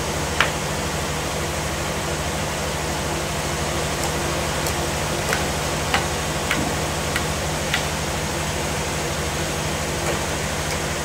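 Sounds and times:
engine running: 0.0 - 11.0
hand tools knocking on log: 4.0 - 8.0, 10.0 - 10.9.

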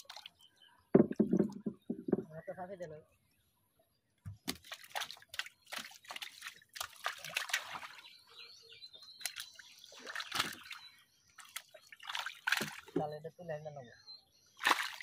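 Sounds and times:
water splashing and dripping: 0.0 - 2.3, 4.2 - 8.2, 9.1 - 13.2, 14.6 - 15.0.

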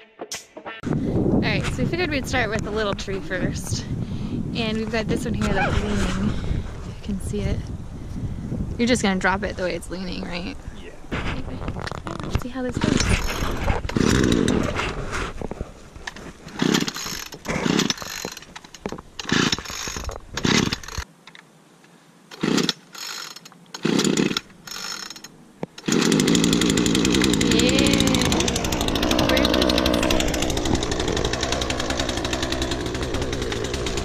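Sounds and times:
chainsaw starter cord yanked: 11.8 - 21.1, 22.3 - 34.0
chainsaw engine running: 12.8 - 15.0, 16.5 - 18.4, 19.2 - 21.0, 22.4 - 34.0.

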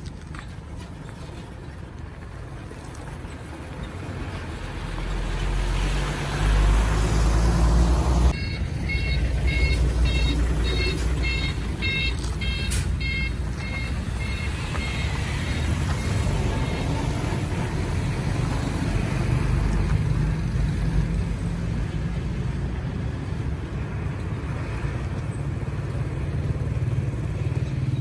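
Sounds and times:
dump truck engine rumble: 0.0 - 28.0
road traffic: 0.0 - 28.0
reversing alarm beeping: 8.3 - 17.1.

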